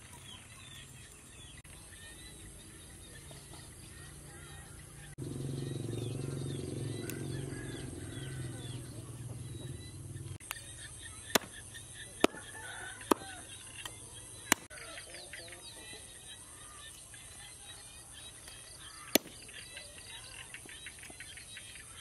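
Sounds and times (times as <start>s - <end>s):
cleaver chopping bones on wood: 11.3s - 11.6s, 12.2s - 13.4s, 14.5s - 14.7s, 19.1s - 19.3s.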